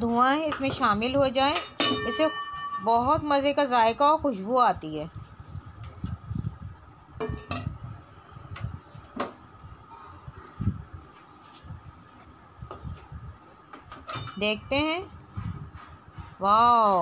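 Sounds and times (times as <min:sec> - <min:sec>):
metal lid clinking on pot: 0:14.1 - 0:14.4.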